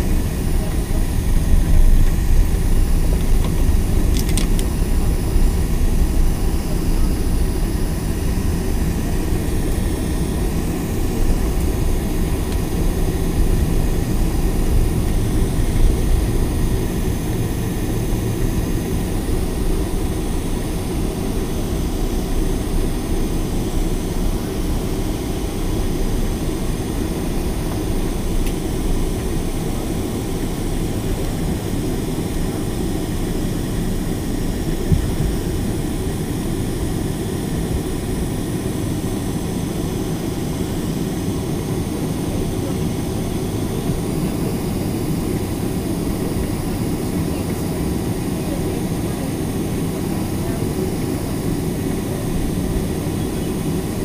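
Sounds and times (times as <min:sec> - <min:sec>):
airplane cabin rumble: 0:00.0 - 0:54.0.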